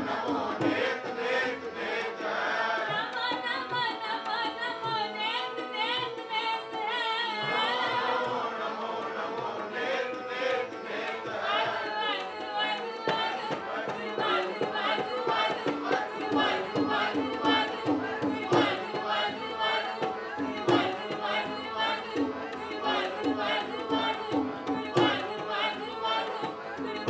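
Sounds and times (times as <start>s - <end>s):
harmonium chords: 0.0s - 27.0s
tabla drumming: 0.0s - 27.0s
woman singing a devotional hymn: 2.8s - 8.2s, 11.9s - 27.0s.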